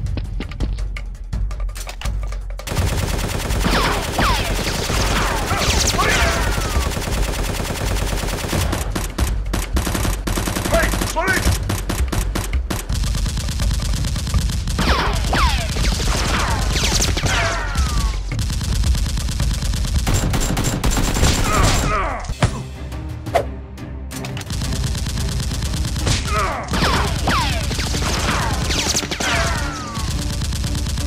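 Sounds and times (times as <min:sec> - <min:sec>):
rapid automatic gunfire: 0:02.7 - 0:21.9, 0:24.5 - 0:31.0.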